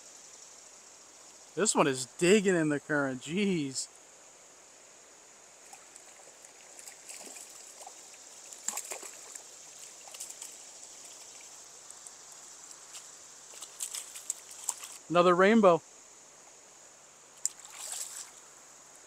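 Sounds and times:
river current running: 0.0 - 19.0
fish splashing: 5.7 - 11.6, 17.5 - 18.4.

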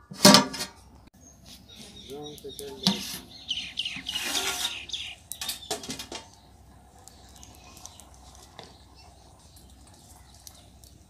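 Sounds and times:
metal ladle scraping steel pot: 0.0 - 0.8, 2.8 - 6.2.

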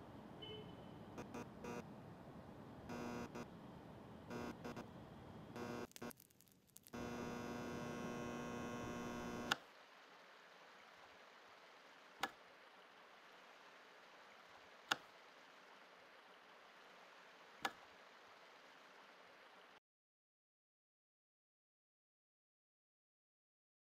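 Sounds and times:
buzzing electrical hum: 0.0 - 9.6
faint steady hiss: 0.0 - 19.8.

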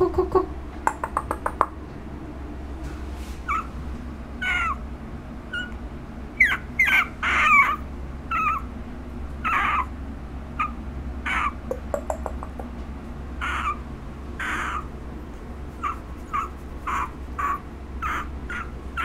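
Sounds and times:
puppy whimpering: 3.4 - 3.8, 4.4 - 4.8, 5.5 - 5.8, 6.4 - 8.7, 9.4 - 9.9, 10.6 - 12.6, 13.4 - 13.8, 14.4 - 14.9, 15.8 - 19.0.

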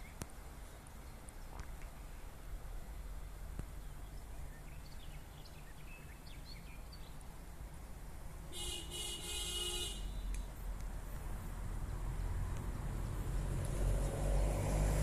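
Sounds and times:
birds chirping faintly: 0.0 - 15.0
train horn: 8.6 - 10.1.

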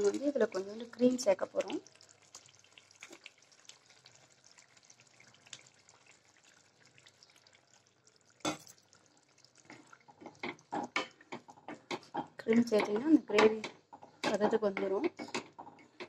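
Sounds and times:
cream being poured: 0.0 - 11.3
thick gravy cooking in a pan: 0.0 - 16.0.

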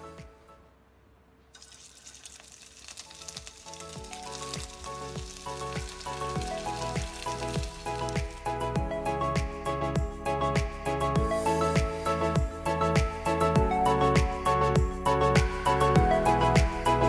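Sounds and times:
background music with beat: 0.0 - 0.6, 3.9 - 17.0
meatballs sizzling in oil: 1.6 - 8.7.

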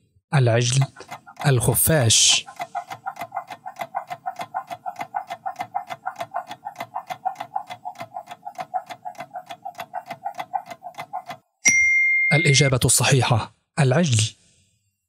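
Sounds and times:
rapid clock ticking with tone: 0.6 - 11.6.

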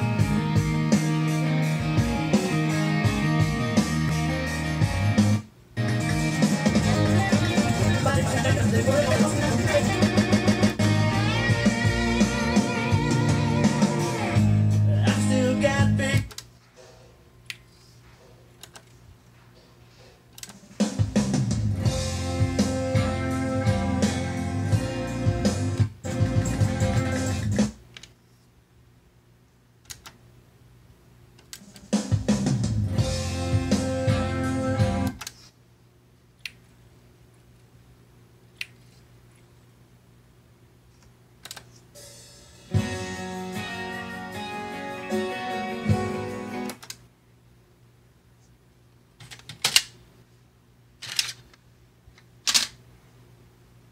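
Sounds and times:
song with guitar and drums: 0.0 - 16.3, 20.8 - 27.8, 31.9 - 35.2, 42.0 - 46.7
faint steady hum: 0.0 - 44.9, 45.7 - 53.9
player click: 29.8 - 30.2, 41.0 - 41.7, 46.7 - 47.0.

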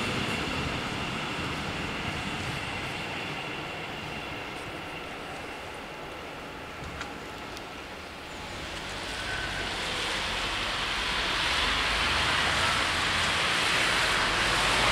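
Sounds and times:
car tyres hissing on wet road: 8.4 - 14.9.

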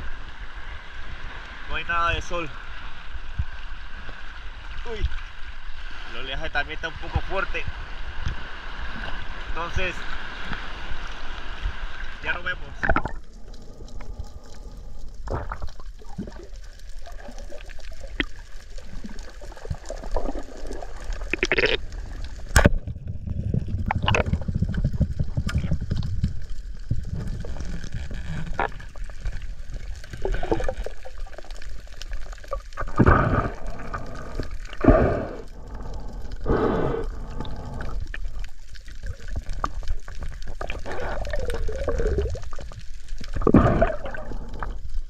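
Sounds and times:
low rumbling water: 0.0 - 45.0
water sloshing and gurgling: 0.0 - 45.0.

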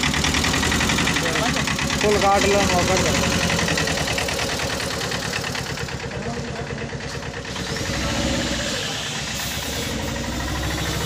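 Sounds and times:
small truck engine idling: 0.0 - 11.0.

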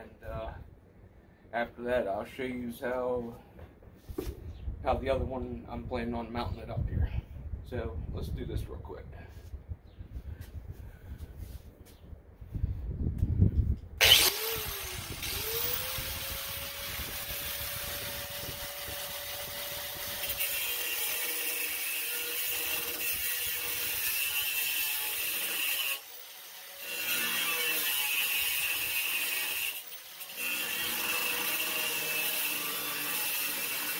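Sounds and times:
angle grinder cutting metal: 14.0 - 33.9.

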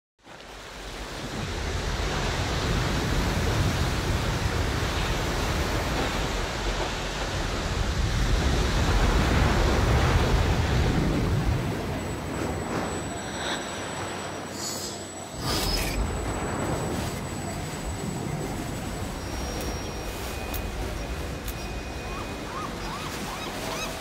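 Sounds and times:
ocean surf breaking: 0.2 - 24.0.

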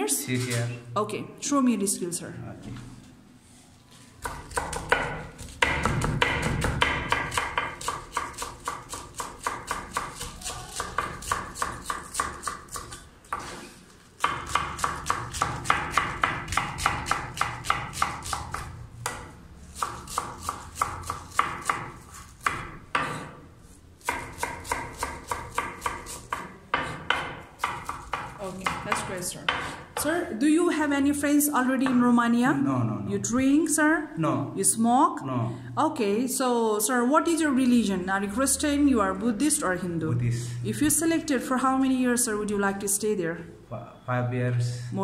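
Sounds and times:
knife chopping on wooden board: 4.2 - 13.6, 14.2 - 23.4, 24.0 - 30.1.

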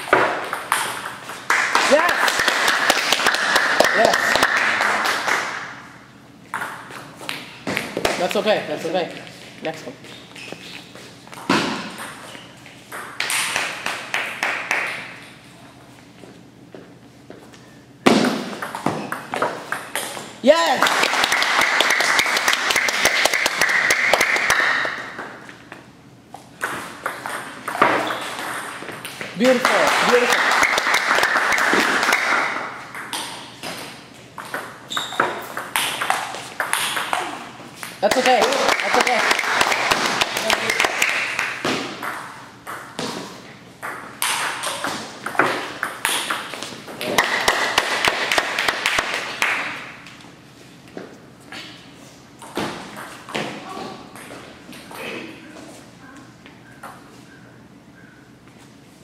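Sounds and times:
ping-pong ball clicking and bouncing: 0.0 - 2.5, 6.5 - 7.4, 11.4 - 15.0, 18.6 - 20.2, 26.6 - 43.1, 43.8 - 49.1
people clapping: 1.4 - 5.7, 13.2 - 15.0, 20.6 - 25.0, 29.4 - 32.6, 38.0 - 41.6, 47.1 - 49.8.

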